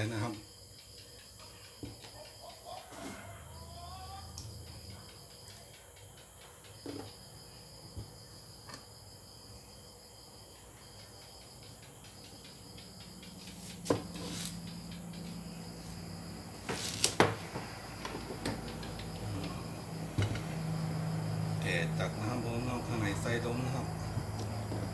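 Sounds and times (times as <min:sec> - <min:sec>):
knife knocking on wooden board: 0:13.6 - 0:14.4.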